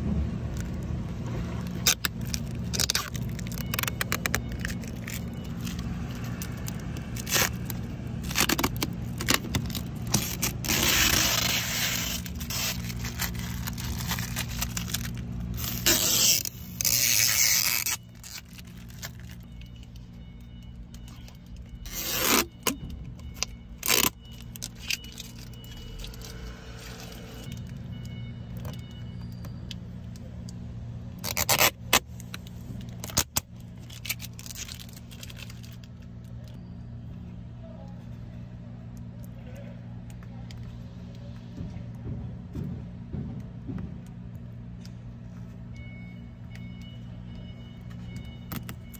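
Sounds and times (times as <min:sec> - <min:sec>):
plastic film peeling: 0:00.5 - 0:20.1, 0:21.1 - 0:22.8, 0:23.4 - 0:27.6, 0:31.2 - 0:36.6.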